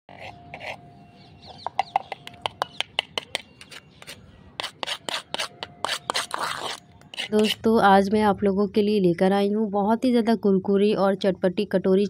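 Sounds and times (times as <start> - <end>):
fork tapping on crisp pastry: 1.5 - 3.7.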